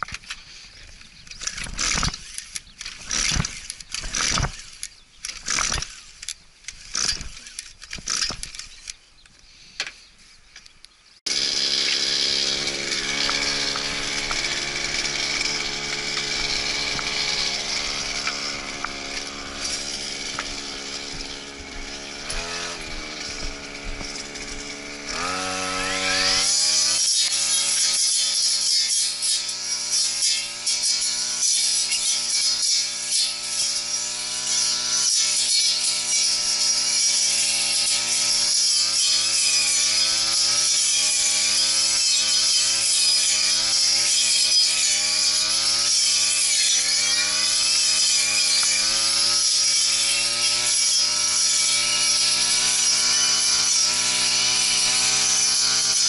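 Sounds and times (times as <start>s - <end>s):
recoil starter yanks rattling: 11.3s - 27.0s
small engine running: 11.3s - 56.0s.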